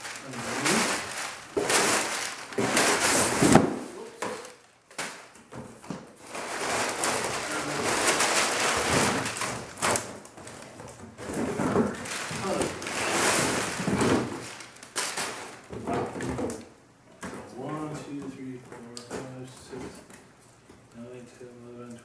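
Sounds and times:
packing paper and plastic rustling: 0:00.0 - 0:16.7.

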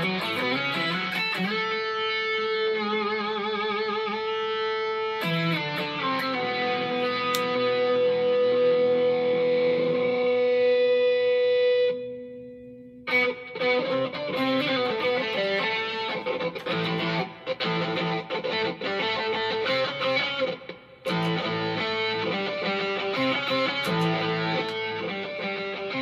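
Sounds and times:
quick picked guitar riffs: 0:00.0 - 0:12.2, 0:13.0 - 0:26.0
distorted electric guitar sustained note: 0:00.0 - 0:18.3.

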